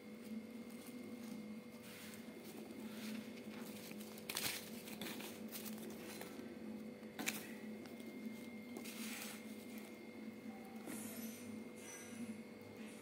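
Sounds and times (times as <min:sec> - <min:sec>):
steady low hum: 0:00.0 - 0:13.0
paper crinkling and rustling: 0:00.2 - 0:10.5.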